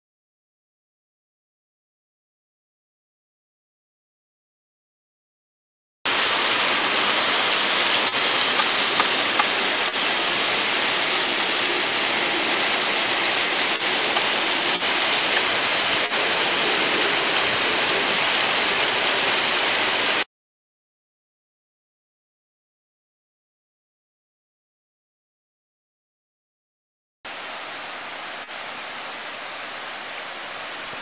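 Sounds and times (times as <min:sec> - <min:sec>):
water rushing over rock ledges: 0:06.1 - 0:20.2, 0:27.3 - 0:31.0.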